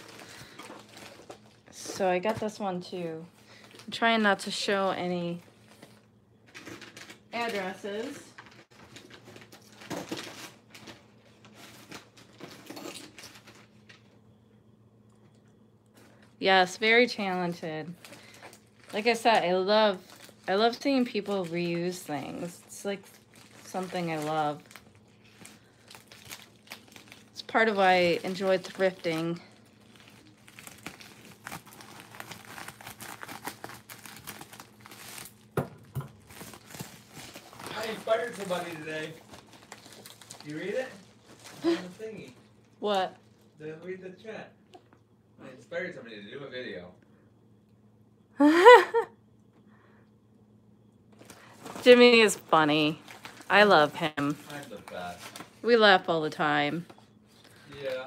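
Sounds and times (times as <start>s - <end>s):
packaging crinkling: 0.0s - 2.0s, 5.3s - 14.2s, 17.9s - 43.6s, 51.1s - 55.6s.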